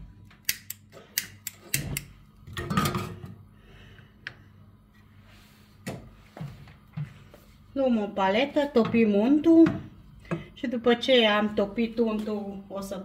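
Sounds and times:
spark lighter clicks: 0:00.4 - 0:02.1.

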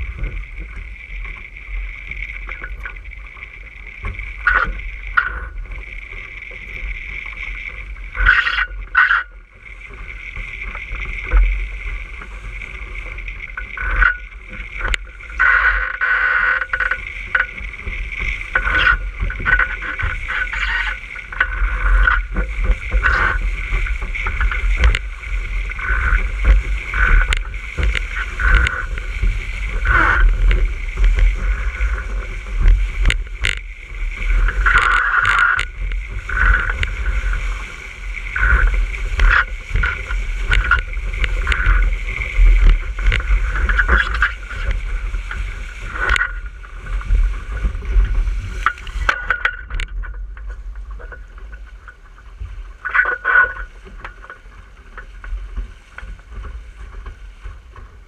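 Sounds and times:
water rushing past hull: 0:00.0 - 0:58.0
waves slapping against hull: 0:00.0 - 0:58.0
wind buffeting microphone: 0:16.8 - 0:52.8.

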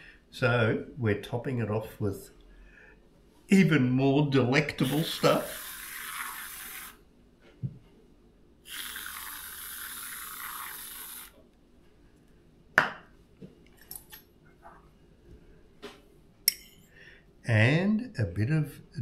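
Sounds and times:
aerosol can hissing: 0:04.8 - 0:07.0, 0:08.7 - 0:11.4.

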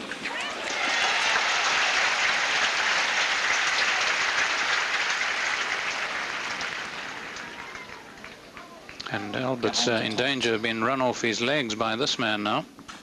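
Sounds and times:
crowd applauding: 0:00.0 - 0:10.4.

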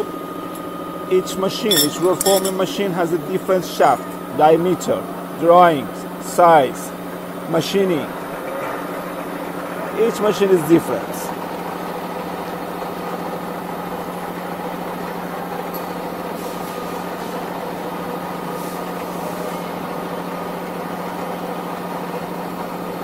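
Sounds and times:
metal lathe humming: 0:01.7 - 0:04.6.

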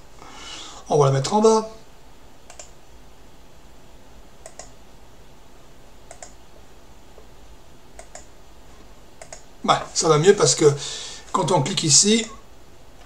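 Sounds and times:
faint low hum: 0:00.0 - 0:13.0
computer mouse clicks: 0:02.5 - 0:02.8, 0:04.4 - 0:04.8, 0:06.1 - 0:06.4, 0:08.0 - 0:08.3, 0:09.2 - 0:09.5.

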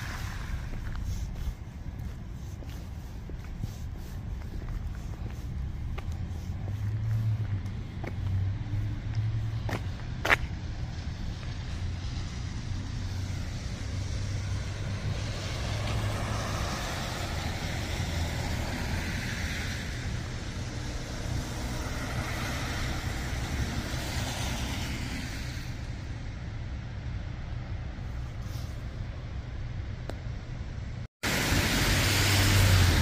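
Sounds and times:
steady low rumble: 0:00.0 - 0:15.5
tyre hiss of passing cars: 0:00.0 - 0:26.2, 0:28.0 - 0:29.2, 0:31.2 - 0:33.0.

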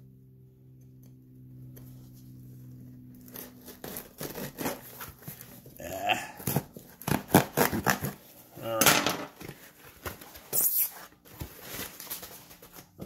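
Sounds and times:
knife sawing through packing tape: 0:03.2 - 0:05.8, 0:06.4 - 0:08.4.

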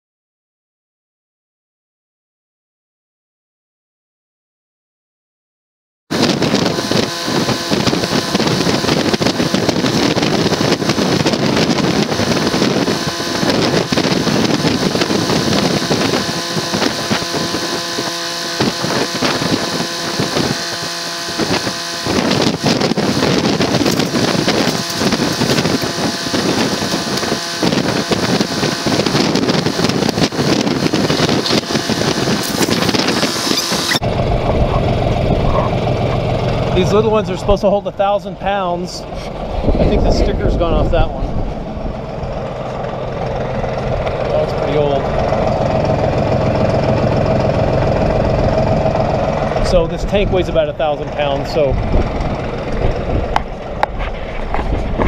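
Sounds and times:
tractor engine running: 0:06.1 - 0:55.0
wind buffeting microphone: 0:06.1 - 0:55.0.

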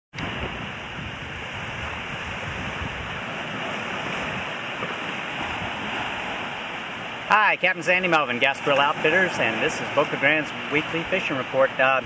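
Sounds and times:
wind buffeting microphone: 0:00.1 - 0:07.3
small waves washing on sand: 0:00.2 - 0:12.0.

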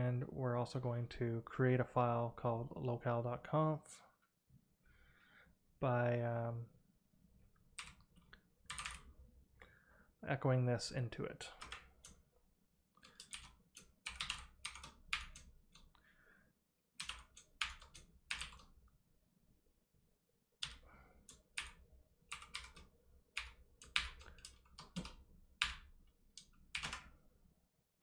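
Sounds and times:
typing on computer keyboard: 0:07.8 - 0:09.1, 0:13.0 - 0:15.9, 0:17.0 - 0:18.7, 0:20.6 - 0:27.1.

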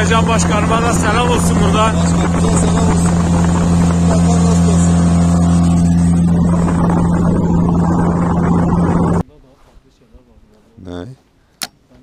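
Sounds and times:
outboard motor running: 0:00.0 - 0:09.2.

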